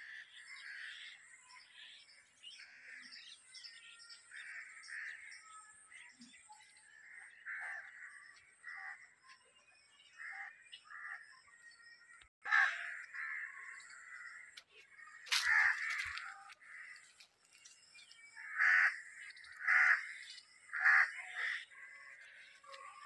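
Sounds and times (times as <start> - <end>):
crows cawing: 0.0 - 1.2, 4.3 - 5.4, 7.0 - 9.1, 10.1 - 11.3, 12.4 - 23.0.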